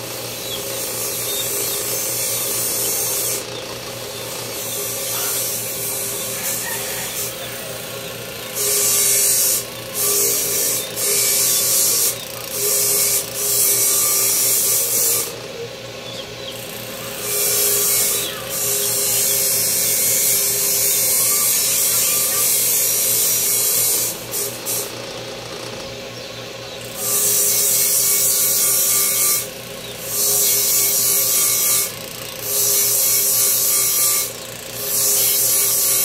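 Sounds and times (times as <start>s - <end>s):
tool rasping against material: 0.0s - 15.4s
small power tool humming: 0.0s - 36.0s.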